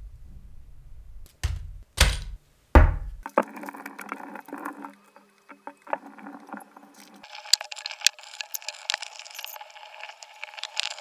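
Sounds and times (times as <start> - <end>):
plastic packet crinkling: 6.0 - 11.0.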